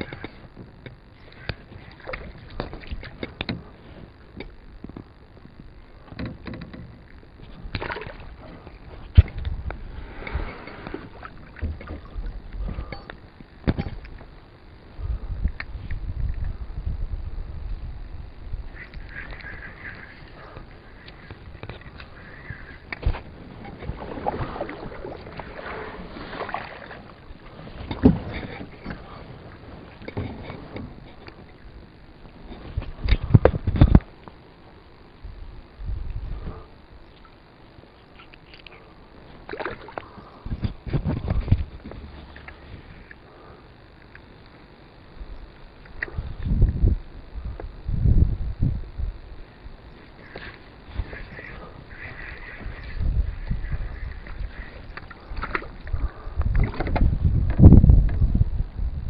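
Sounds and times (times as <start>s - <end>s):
small knocks and rattles: 6.0s - 9.6s
light water sounds: 18.8s - 31.7s, 38.0s - 43.3s.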